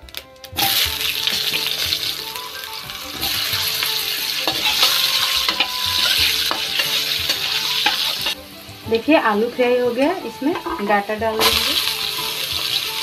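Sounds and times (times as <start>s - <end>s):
potato wedges sizzling in oil: 0.0s - 13.0s
metal spatula knocking and scraping: 4.4s - 8.4s.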